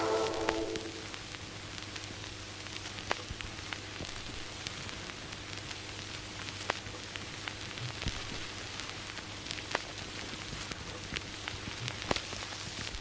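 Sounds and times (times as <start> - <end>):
low hum: 0.0 - 1.2
steady hiss: 0.0 - 13.0
sharp clicks and crackles: 1.3 - 12.9.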